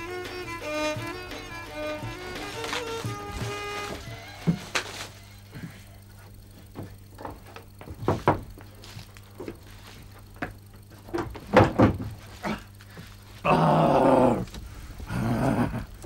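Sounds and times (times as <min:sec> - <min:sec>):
knocks and thuds: 0:06.7 - 0:08.6, 0:10.4 - 0:12.6.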